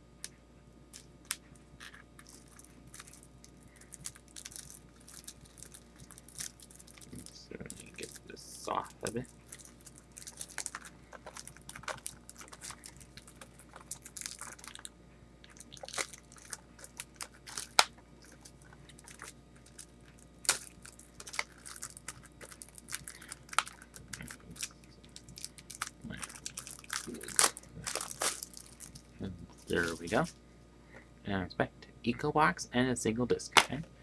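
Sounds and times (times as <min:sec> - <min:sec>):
shrink wrap crackling: 0:00.9 - 0:30.4.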